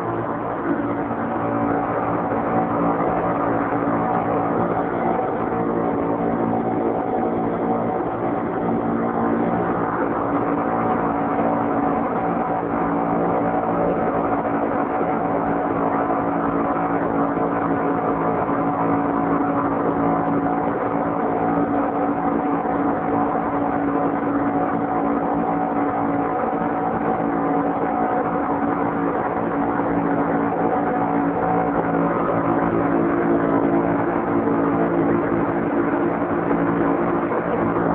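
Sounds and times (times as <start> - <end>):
outboard motors humming: 0.0 - 37.9.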